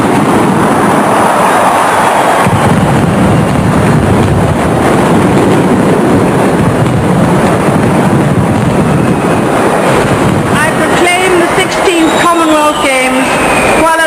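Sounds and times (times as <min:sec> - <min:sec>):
large drums in fast roll: 0:02.4 - 0:12.3.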